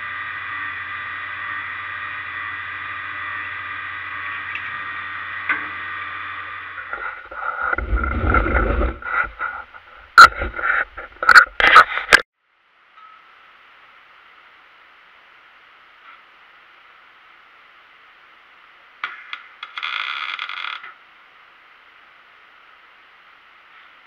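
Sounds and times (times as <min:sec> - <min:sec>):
drill press motor humming: 0:00.0 - 0:09.6
rumbling and scraping: 0:04.2 - 0:12.2
faint steady hiss: 0:12.4 - 0:24.0.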